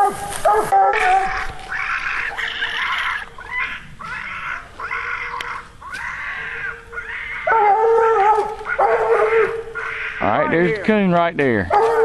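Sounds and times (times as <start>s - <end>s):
dog barking: 0.0s - 1.3s, 7.4s - 9.9s, 11.7s - 12.0s.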